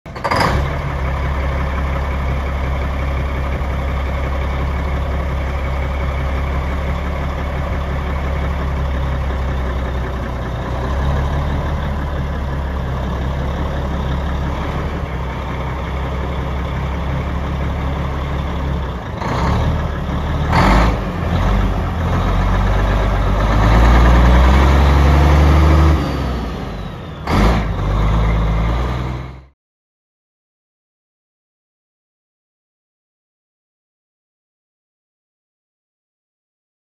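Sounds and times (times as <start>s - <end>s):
diesel engine idling: 0.1s - 29.5s.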